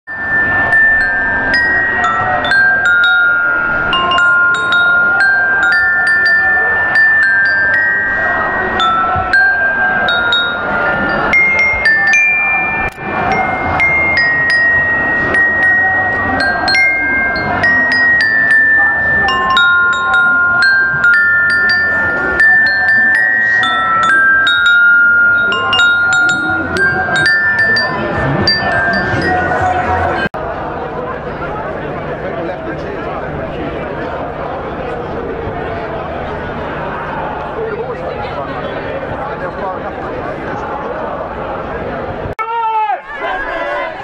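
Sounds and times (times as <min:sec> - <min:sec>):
street crowd noise: 0:00.0 - 0:44.0
glockenspiel melody: 0:00.1 - 0:30.3.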